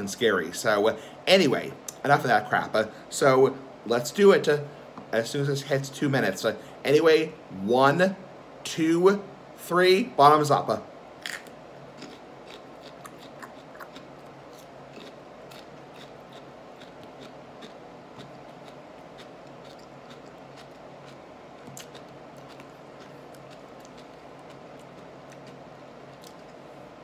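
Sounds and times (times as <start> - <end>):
person chewing raw peppers: 11.2 - 26.8.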